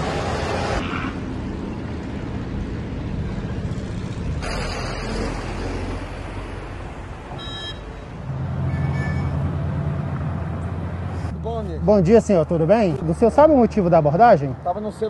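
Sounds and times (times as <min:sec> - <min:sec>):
cars driving by: 0:00.0 - 0:15.0
burst of rushing noise: 0:04.4 - 0:06.7.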